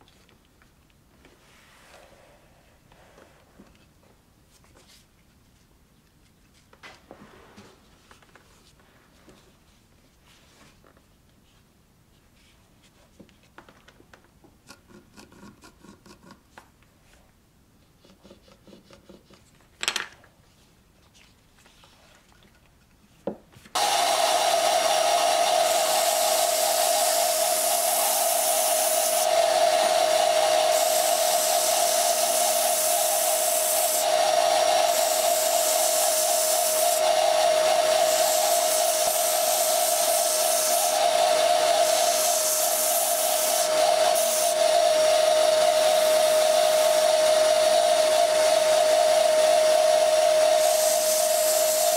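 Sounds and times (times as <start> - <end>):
handling and rubbing sounds: 0.0 - 14.0, 14.9 - 23.8
belt sander whine: 23.8 - 51.9
gritty sanding hiss: 25.1 - 44.6, 50.6 - 51.9.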